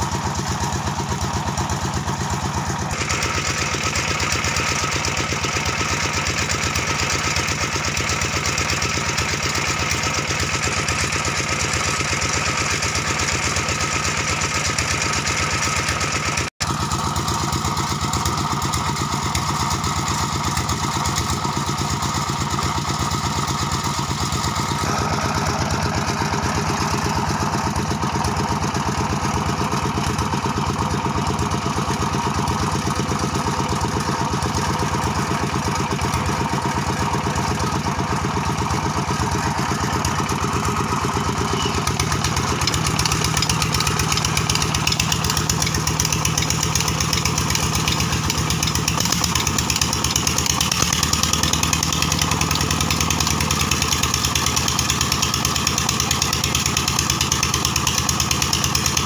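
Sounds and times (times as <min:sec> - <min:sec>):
single-cylinder diesel engine running: 0:00.0 - 0:59.0.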